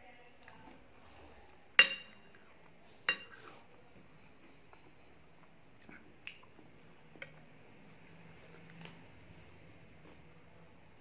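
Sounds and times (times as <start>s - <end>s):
spoon clinking on glass plate: 1.8s - 2.2s, 3.1s - 3.4s.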